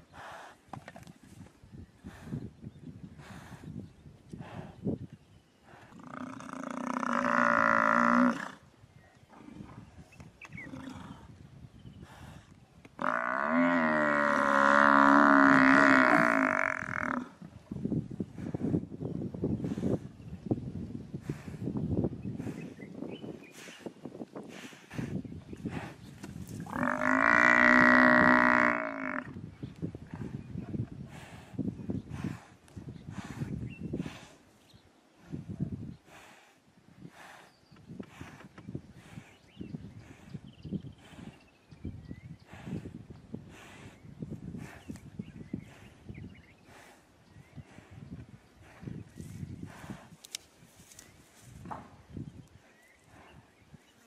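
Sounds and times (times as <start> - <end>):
buffalo bellowing: 13.0 - 17.3
scuffling and rustling in grass: 50.1 - 51.7.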